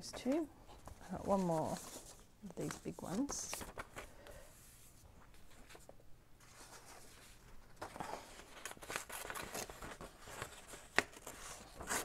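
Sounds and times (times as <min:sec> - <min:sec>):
paper rustling: 0:00.2 - 0:12.0.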